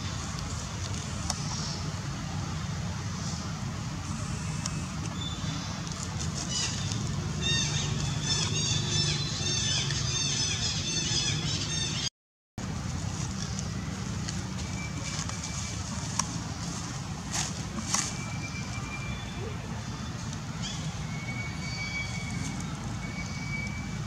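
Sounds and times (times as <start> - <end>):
rapid high chirping calls: 18.1 - 23.9.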